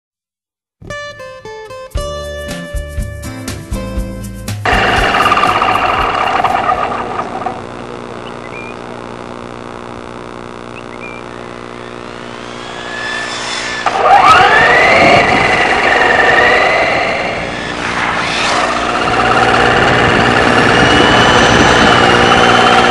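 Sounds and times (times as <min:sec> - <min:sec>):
electric model motor whining: 0:04.7 - 0:22.9.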